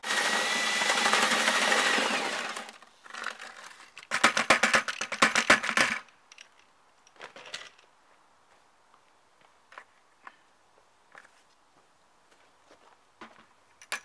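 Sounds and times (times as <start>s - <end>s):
paddle mixer motor whining: 0.0s - 2.7s
sharp knocks and rattles: 3.1s - 6.6s.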